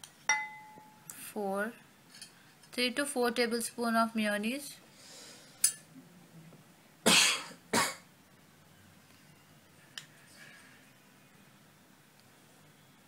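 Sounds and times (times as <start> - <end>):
person coughing: 7.1 - 8.0.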